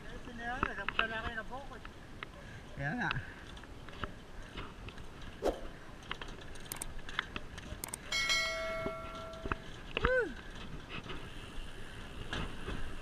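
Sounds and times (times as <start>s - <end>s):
bicycle rattling: 0.0s - 13.0s
bell-like ding: 8.1s - 9.7s.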